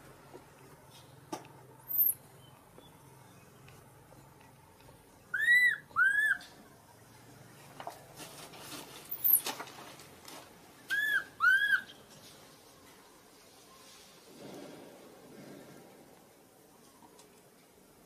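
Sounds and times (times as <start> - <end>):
high falling chirp: 1.9 - 2.5
baby monkey coo calls: 5.3 - 6.5, 10.9 - 12.0.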